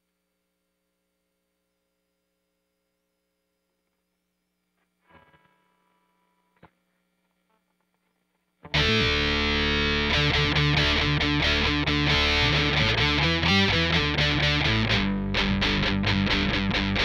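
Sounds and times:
faint hum: 0.0s - 17.0s
distorted electric guitar: 8.6s - 17.0s.

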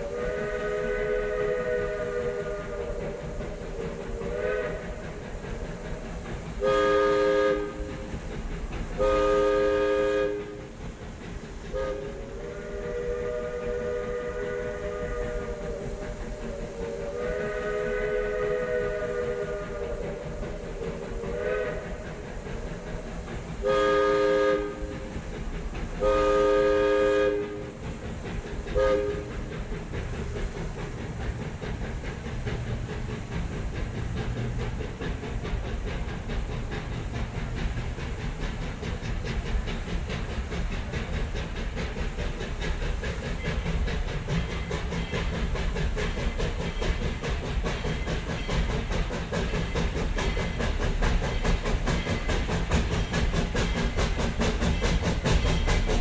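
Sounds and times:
train whistles sounding chords: 0.0s - 3.2s, 4.3s - 5.0s, 6.6s - 8.0s, 9.0s - 10.6s, 11.7s - 16.0s, 16.6s - 20.2s, 20.8s - 22.1s, 23.6s - 25.1s, 26.0s - 27.7s, 28.7s - 29.4s.

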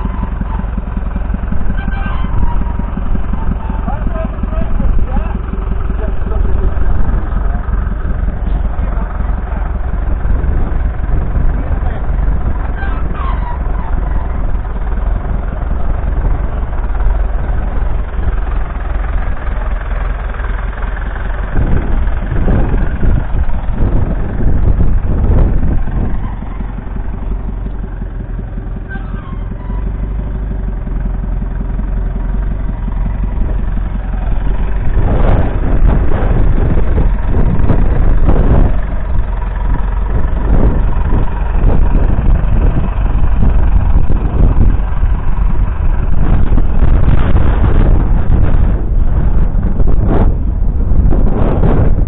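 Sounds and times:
tractor diesel engine running: 0.0s - 52.0s.

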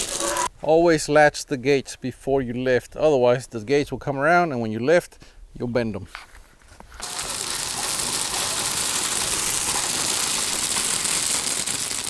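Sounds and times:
gravel pouring and rattling: 0.0s - 0.5s, 7.0s - 12.0s.

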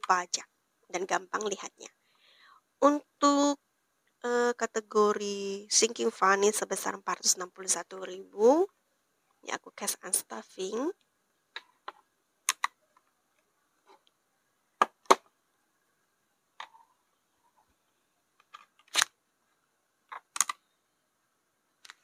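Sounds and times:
desk items clicking and tapping: 11.5s - 13.1s, 14.8s - 15.3s.

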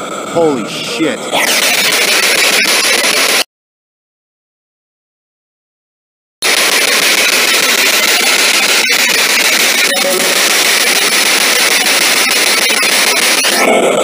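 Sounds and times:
radio static hiss: 0.0s - 3.5s, 6.4s - 14.0s.

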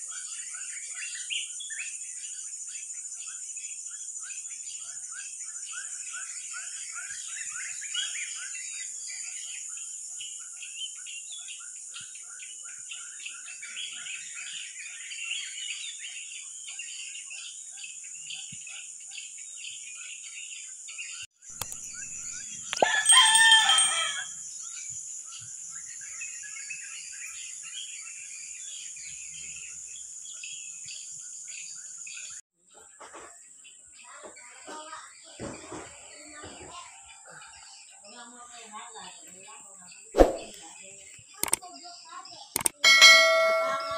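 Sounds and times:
small bird chirps: 0.0s - 33.0s, 37.2s - 43.9s
rooster crowing: 22.8s - 24.3s.

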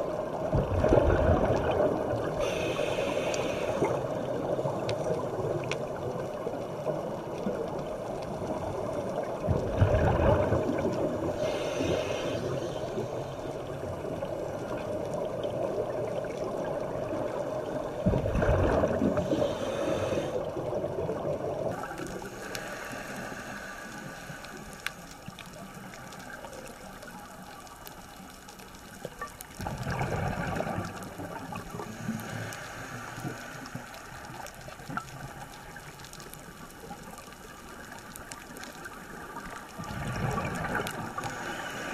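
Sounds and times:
exhaled scuba bubbles: 0.0s - 41.9s
underwater water wash: 0.0s - 41.9s.

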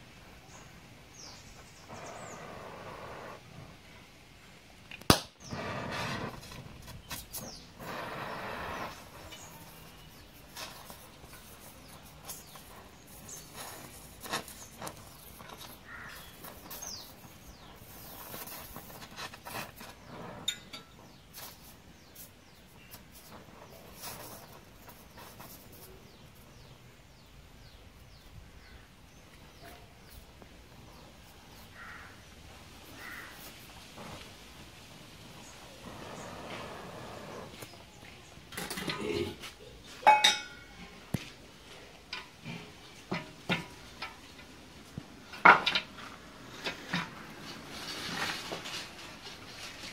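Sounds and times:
gas torch hissing: 1.2s - 3.9s, 5.1s - 26.0s, 33.0s - 37.8s
crow-like bird calls: 15.8s - 16.4s, 31.7s - 32.3s, 32.9s - 33.5s.

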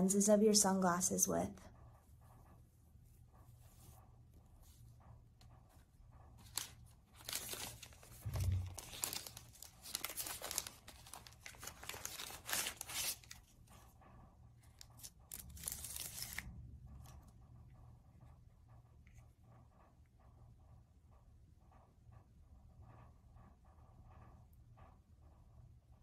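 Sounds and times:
plastic wrapping crinkling and tearing: 6.4s - 13.5s, 14.8s - 16.4s
protective film peeling: 6.4s - 13.5s, 15.0s - 16.4s.

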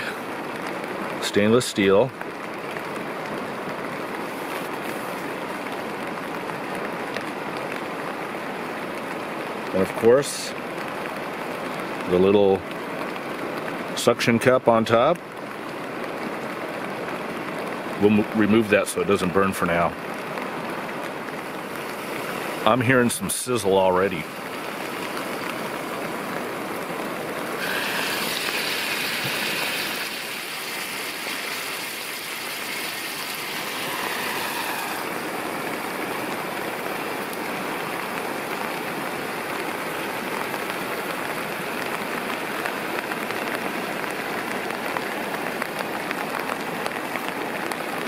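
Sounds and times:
rain pattering: 0.0s - 48.0s
river running: 0.0s - 48.0s
bacon sizzling in a frying pan: 27.6s - 35.1s.

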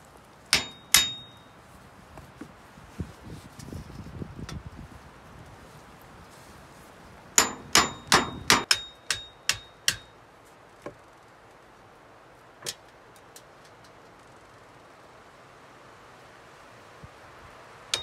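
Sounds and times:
ringing blows on thin metal: 0.6s - 1.6s, 7.4s - 10.2s.

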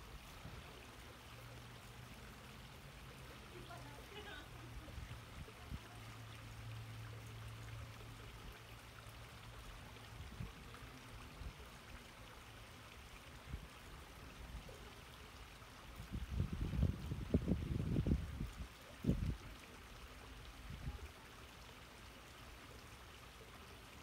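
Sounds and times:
wind rumbling on microphone: 15.9s - 19.6s.

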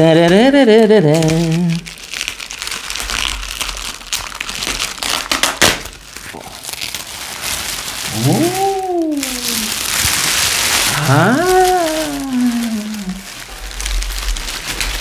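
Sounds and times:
plastic bag crinkling: 1.0s - 15.0s.

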